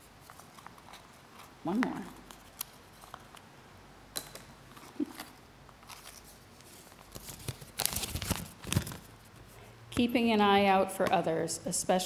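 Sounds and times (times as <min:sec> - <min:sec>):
paper rustling and crinkling: 0:00.0 - 0:03.4, 0:04.7 - 0:09.6.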